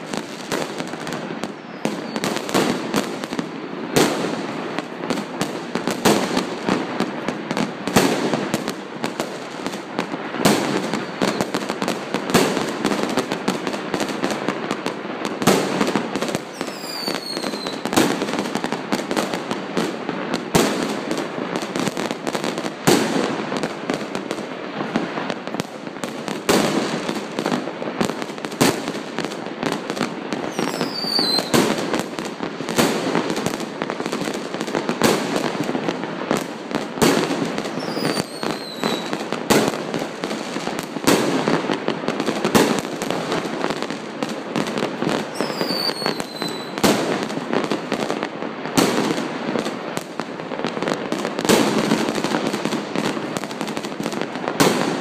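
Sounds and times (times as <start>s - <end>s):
fireworks bangs and crackling: 0.0s - 55.0s
falling firework whistles: 1.4s - 2.8s, 10.8s - 11.6s, 16.4s - 18.1s, 30.4s - 31.7s, 37.6s - 39.2s, 45.3s - 47.0s.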